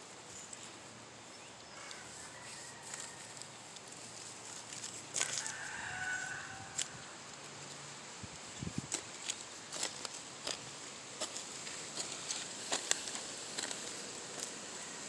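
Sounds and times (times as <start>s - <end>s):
rooster crowing: 1.7s - 3.6s, 5.2s - 7.1s, 14.7s - 15.0s.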